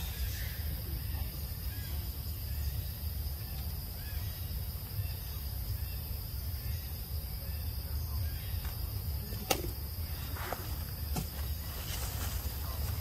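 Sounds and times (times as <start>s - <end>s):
insect drone: 0.0s - 13.0s.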